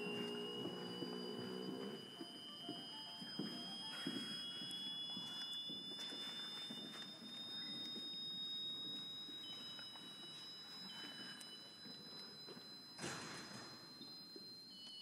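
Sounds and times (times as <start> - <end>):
thin high sustained tones: 0.0 - 15.0.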